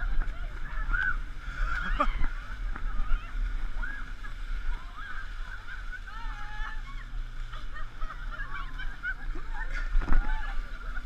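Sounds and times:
low rumble of wind: 0.0 - 11.0
people calling out: 0.0 - 11.0.

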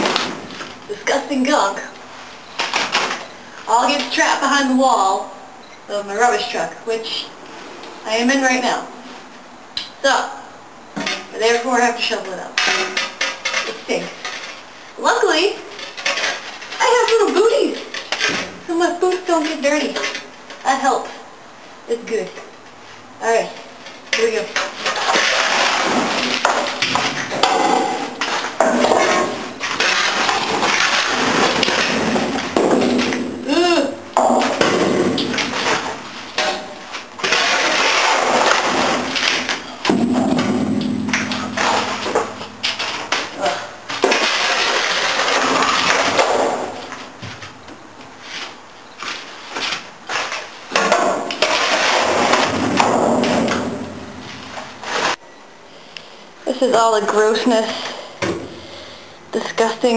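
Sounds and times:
shovel scraping metal floor: 24.2 - 33.6, 34.2 - 47.0.

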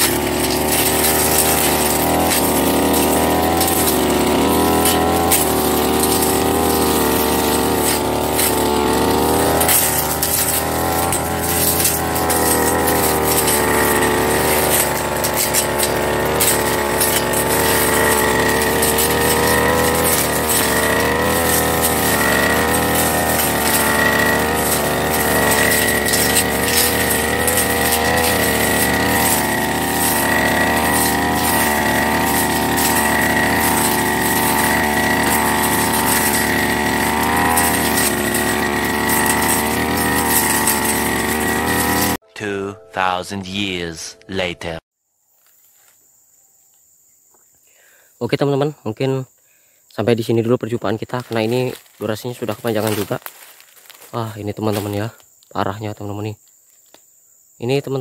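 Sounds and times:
brush cutter engine running: 0.0 - 42.2, 51.0 - 55.1
ticks of stems being struck: 0.0 - 42.2.

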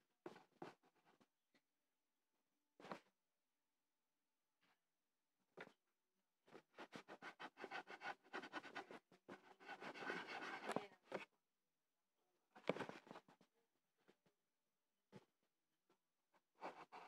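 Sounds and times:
drawing tool scratching paper: 6.7 - 11.2, 16.6 - 17.0.

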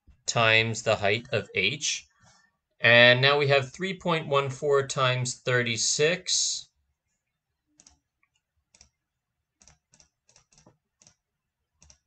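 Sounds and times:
faint computer clicking: 7.8 - 9.0, 11.8 - 12.0.

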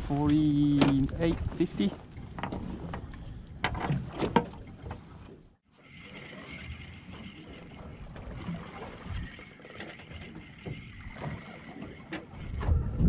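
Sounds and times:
water noise around boat: 0.0 - 13.0
wind: 0.0 - 13.0.

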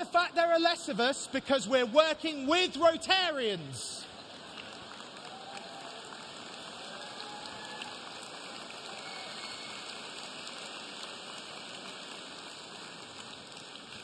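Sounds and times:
large audience applauding: 4.0 - 14.0.

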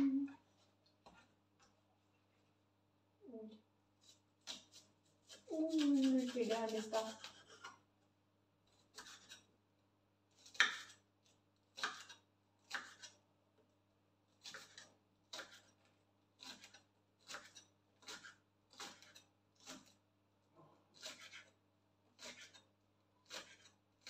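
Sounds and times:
knife slicing on wooden board: 4.0 - 7.8, 10.4 - 11.0, 11.8 - 13.2, 21.0 - 21.6, 22.2 - 23.8.

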